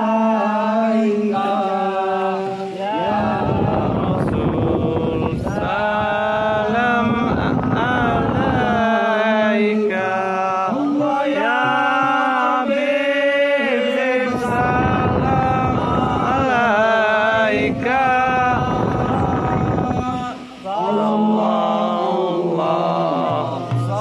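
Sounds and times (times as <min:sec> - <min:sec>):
man singing into a microphone: 0:00.0 - 0:24.0
hand frame drums beating: 0:03.1 - 0:10.1, 0:10.7 - 0:12.6, 0:23.2 - 0:24.0.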